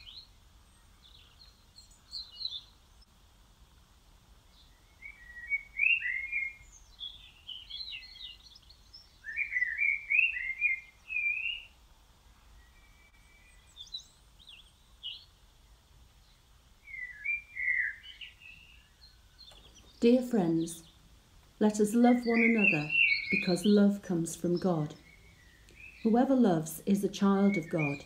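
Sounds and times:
songbird warbling: 4.7 - 11.8, 16.8 - 21.0, 21.6 - 28.0.

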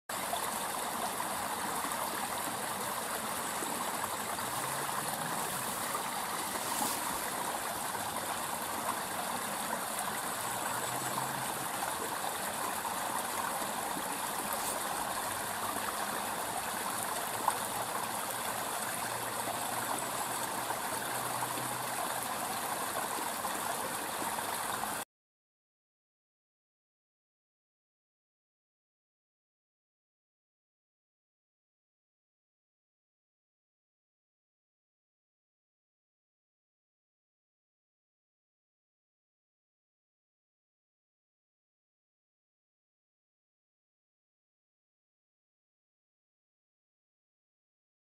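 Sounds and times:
stream babbling over stones: 0.1 - 25.0.

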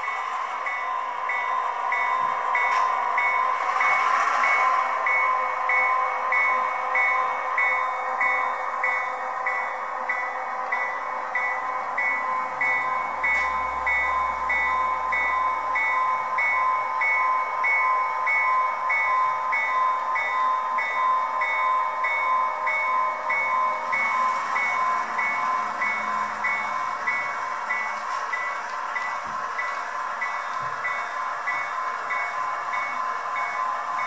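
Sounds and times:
model locomotive bell ringing: 0.0 - 34.0
engine sound hiss: 1.9 - 5.7.

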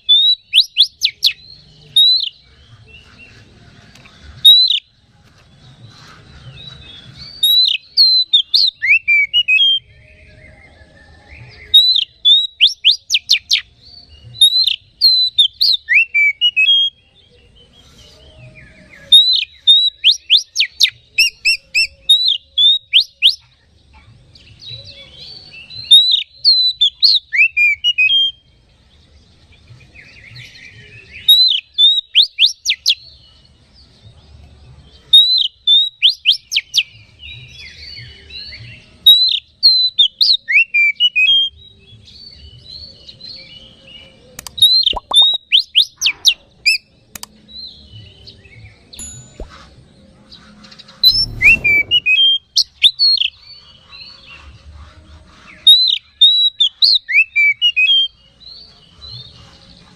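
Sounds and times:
bird whistling song: 0.0 - 3.4, 4.4 - 5.0, 6.0 - 23.5, 24.5 - 28.5, 29.9 - 33.2, 34.9 - 49.8, 50.6 - 54.6, 55.4 - 59.9
bird twittering and chattering: 42.1 - 59.9.

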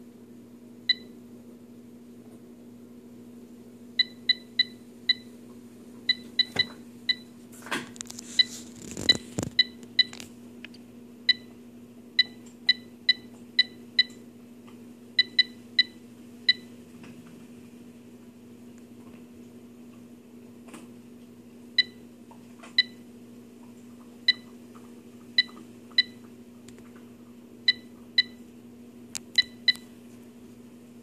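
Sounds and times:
steady low hum: 0.0 - 31.0
control panel beeping: 29.2 - 29.9.

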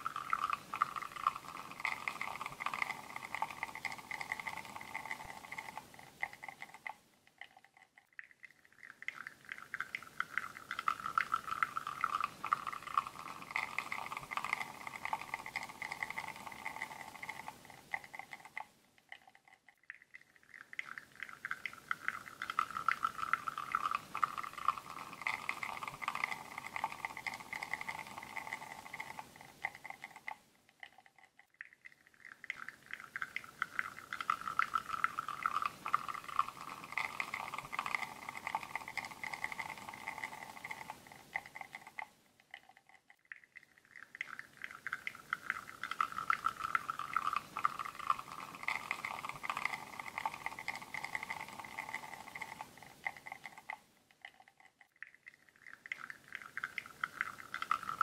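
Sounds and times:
espresso trickling into cup: 0.0 - 8.0, 8.8 - 18.7, 20.5 - 30.4, 32.2 - 42.1, 44.0 - 53.8, 55.6 - 58.0.

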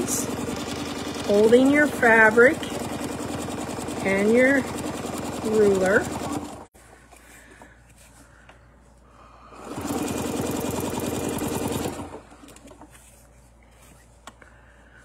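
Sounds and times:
sewing machine stitching: 0.0 - 6.7, 9.6 - 12.8.

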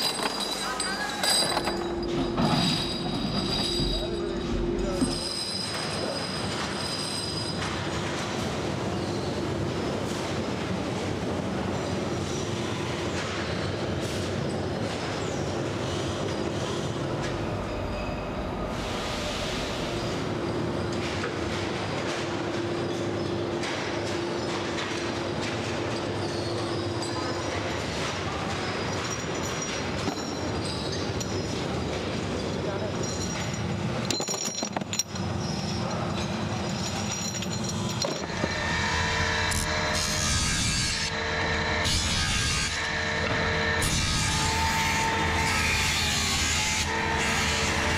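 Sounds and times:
metal parts clinking: 0.0 - 7.8, 25.9 - 39.7
saw cutting: 38.3 - 47.9.

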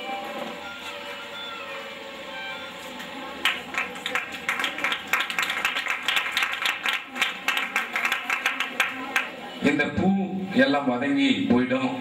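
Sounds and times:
background music with held notes: 0.0 - 4.0
audience applauding: 3.4 - 9.4.

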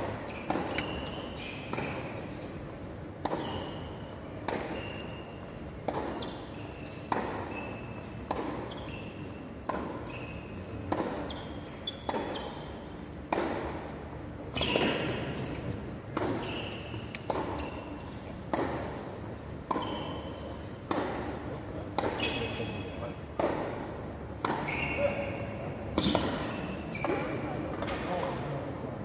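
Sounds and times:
racket hitting tennis ball: 0.1 - 2.3, 3.2 - 3.8, 4.4 - 4.9, 5.8 - 7.6, 8.2 - 8.8, 9.6 - 17.8, 18.5 - 22.5, 23.4 - 24.8
shoe squeaks: 0.1 - 2.6, 3.3 - 13.1, 14.5 - 18.3, 19.4 - 20.9, 21.5 - 23.2, 24.3 - 28.2.

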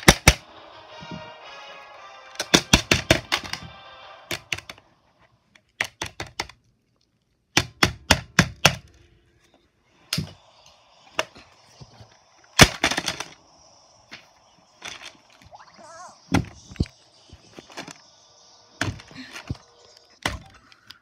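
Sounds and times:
plastic calculator being smashed: 12.6 - 13.4.

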